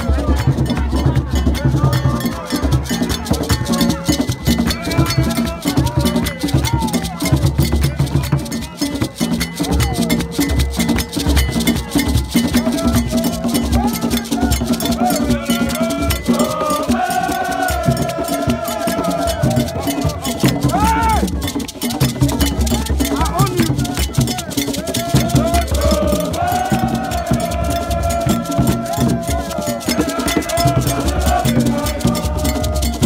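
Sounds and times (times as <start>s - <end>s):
crowd singing: 0.0s - 10.2s, 11.5s - 33.0s
hand drums: 0.0s - 33.0s
metal bell beating rhythm: 0.0s - 33.0s.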